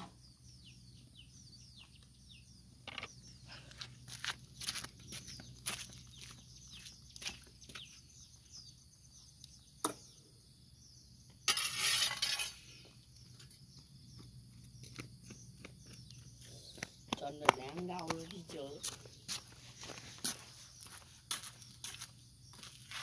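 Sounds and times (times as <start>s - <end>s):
shovel scraping on concrete: 11.4s - 12.9s
shovel clinking on concrete: 11.5s - 12.7s.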